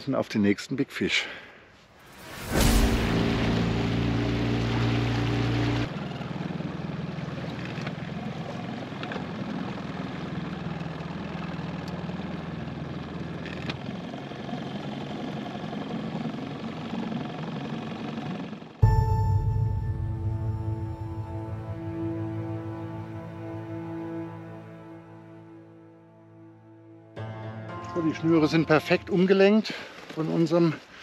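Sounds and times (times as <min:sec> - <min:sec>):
small boat engine running: 0:03.1 - 0:19.0.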